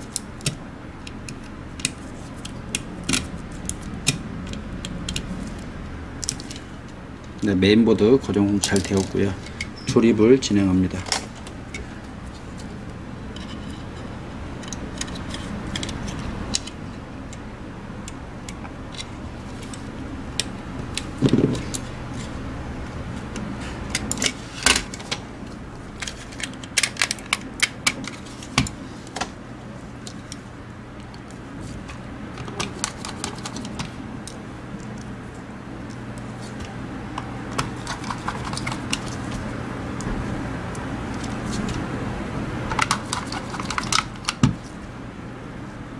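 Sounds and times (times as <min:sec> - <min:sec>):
low steady hum: 0:00.0 - 0:45.9.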